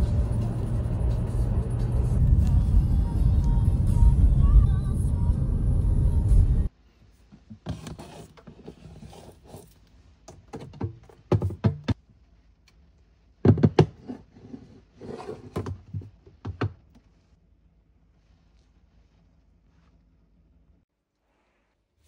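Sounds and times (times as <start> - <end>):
plastic containers knocking and clicking: 10.3 - 12.0, 13.4 - 14.2, 15.4 - 17.0.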